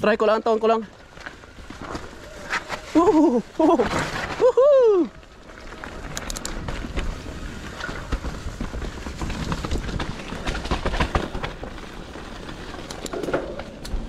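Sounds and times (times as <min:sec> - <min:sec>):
bike tyres rolling over dirt and rock: 0:00.0 - 0:14.0
bike knocking and rattling: 0:05.2 - 0:14.0.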